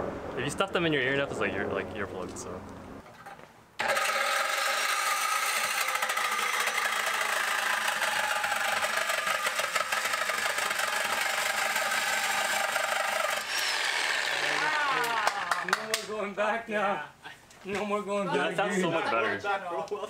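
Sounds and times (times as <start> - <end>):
reciprocating saw cutting metal pipe: 3.8 - 15.2.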